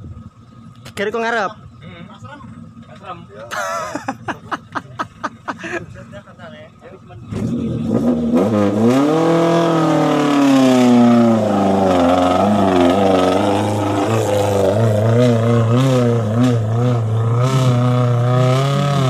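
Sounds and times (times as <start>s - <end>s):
engine revving hard: 7.3s - 19.0s.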